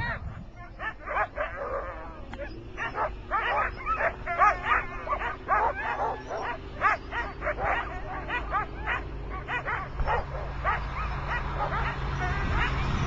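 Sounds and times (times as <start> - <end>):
dogs barking and yipping: 0.0 - 13.0.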